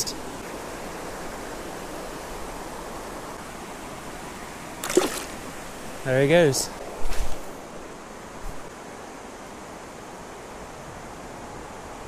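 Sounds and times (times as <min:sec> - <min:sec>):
river current rushing: 0:00.0 - 0:12.0
fish splashing into water: 0:04.8 - 0:05.5.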